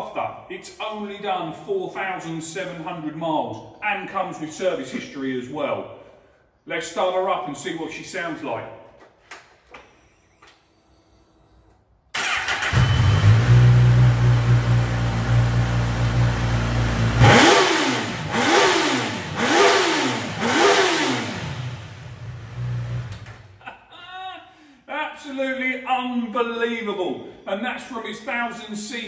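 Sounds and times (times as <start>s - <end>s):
motorcycle engine revving: 12.2s - 23.3s.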